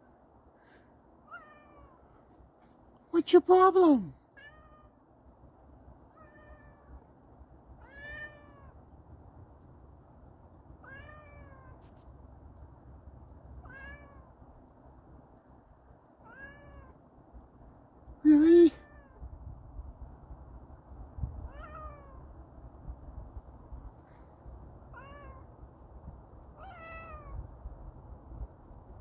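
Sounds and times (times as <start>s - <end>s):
cat meowing: 1.3s - 2.0s, 4.4s - 5.0s, 6.1s - 7.0s, 7.8s - 8.8s, 10.8s - 11.9s, 13.6s - 14.3s, 16.2s - 17.0s, 18.7s - 19.2s, 21.5s - 22.3s, 24.9s - 25.5s, 26.6s - 27.4s.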